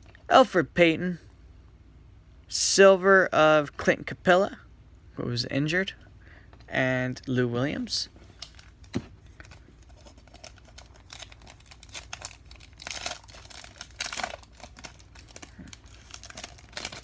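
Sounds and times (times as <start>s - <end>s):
foil wrapper crinkling and tearing: 8.4s - 17.0s.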